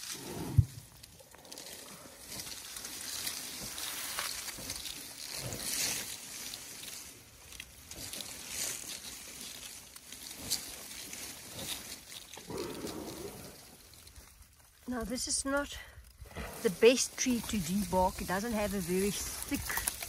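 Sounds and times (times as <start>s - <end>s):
elephant chewing bark: 0.0s - 14.8s, 16.0s - 20.0s
branches rustling and tearing: 0.0s - 20.0s
branch snapping: 19.4s - 20.0s.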